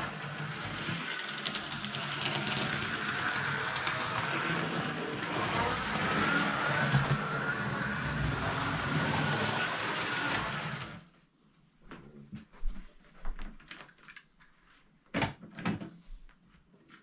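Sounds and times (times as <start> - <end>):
model train motor whir: 0.0 - 11.0.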